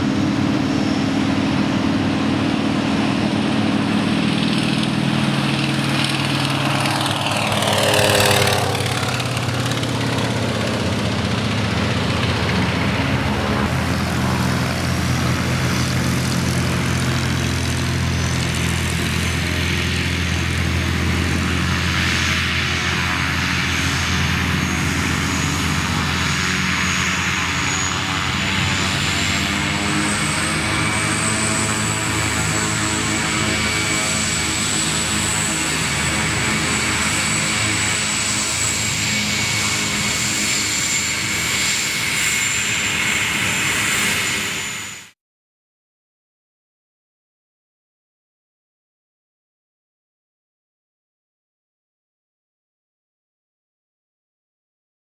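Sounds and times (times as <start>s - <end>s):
propeller plane engine: 0.0s - 45.2s.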